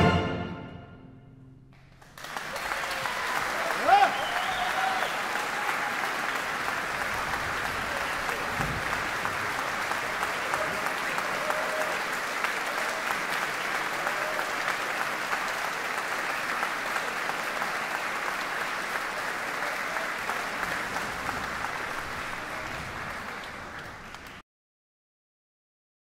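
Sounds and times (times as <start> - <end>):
audience applauding: 1.8 - 24.4.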